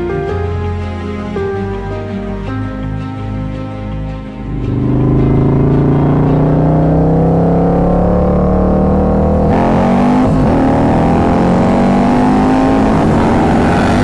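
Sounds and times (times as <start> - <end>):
motorcycle accelerating hard: 4.4 - 14.0.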